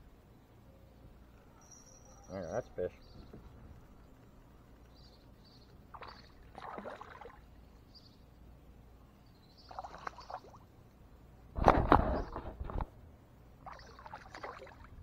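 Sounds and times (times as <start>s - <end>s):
paddle strokes splashing: 5.9s - 7.4s, 13.6s - 14.9s
loud thump with rumble: 11.6s - 12.9s.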